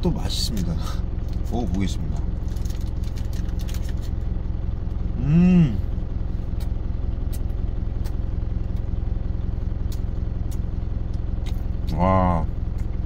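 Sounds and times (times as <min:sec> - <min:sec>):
truck engine idling: 0:00.0 - 0:13.0
man humming while chewing: 0:05.1 - 0:06.0.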